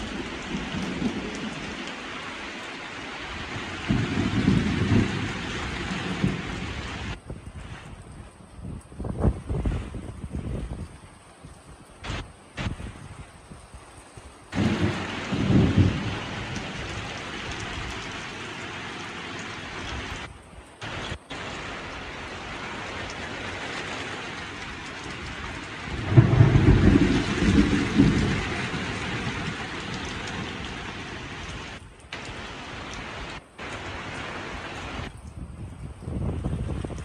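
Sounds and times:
thunder rumbling: 0.0s - 2.1s, 3.4s - 7.2s, 14.5s - 18.4s, 24.2s - 35.1s
heavy rain hissing: 0.0s - 7.9s, 12.0s - 13.0s, 14.5s - 35.1s.

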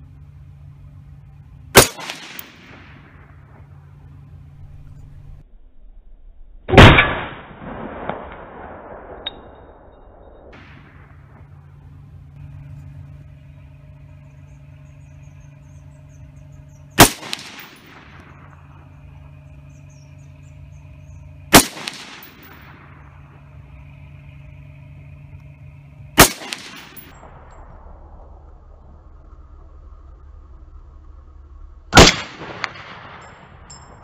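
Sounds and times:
low steady hum: 0.0s - 34.0s
rifle shots with echo: 1.8s - 3.6s, 6.7s - 9.6s, 10.5s - 11.5s, 16.9s - 23.3s, 26.2s - 27.3s, 32.0s - 33.6s.

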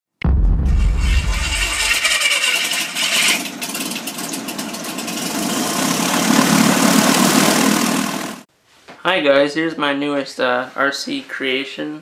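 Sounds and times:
mechanical engine drone: 0.2s - 8.4s.

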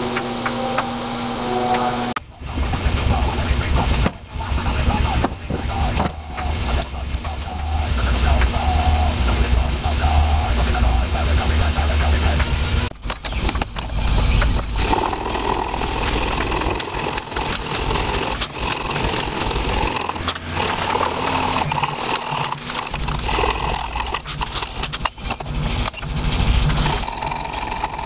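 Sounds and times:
file scraping steel blade: 14.8s - 25.4s.

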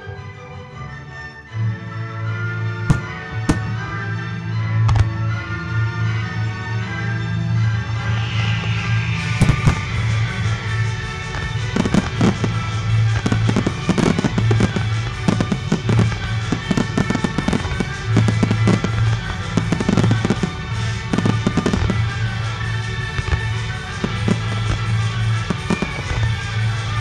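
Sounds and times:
music playing: 0.0s - 27.0s
fireworks bangs and pops: 2.9s - 4.1s, 4.9s - 5.2s, 8.2s - 27.0s.

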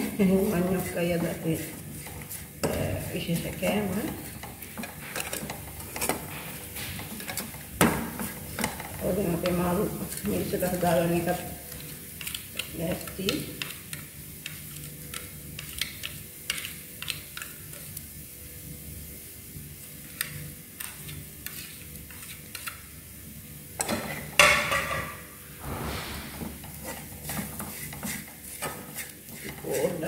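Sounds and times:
metal spoon scraping frying pan: 26.7s - 30.0s.

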